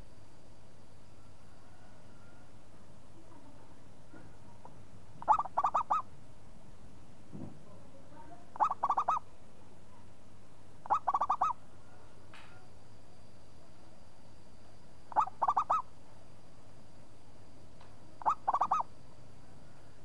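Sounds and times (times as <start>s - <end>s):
dove cooing: 5.2s - 6.1s, 8.6s - 9.2s, 10.8s - 12.0s, 15.1s - 15.9s, 18.2s - 18.9s.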